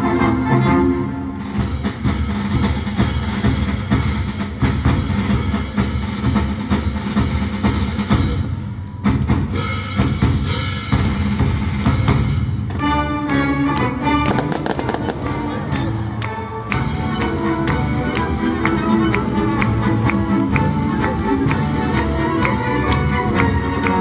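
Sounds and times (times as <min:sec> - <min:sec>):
orchestra playing: 0:00.0 - 0:24.0
snare and bass drum rolls: 0:01.4 - 0:12.8, 0:14.2 - 0:16.1.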